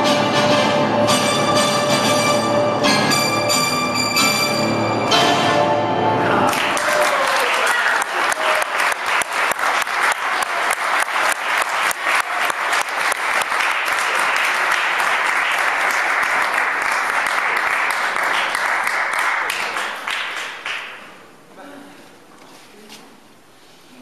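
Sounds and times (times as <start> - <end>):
audience applauding: 6.3 - 21.2.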